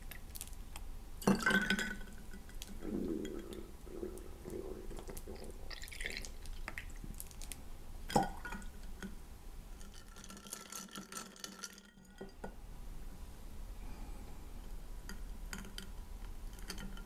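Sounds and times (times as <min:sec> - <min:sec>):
glassware and ice clinking: 0:01.2 - 0:02.2, 0:16.5 - 0:17.0.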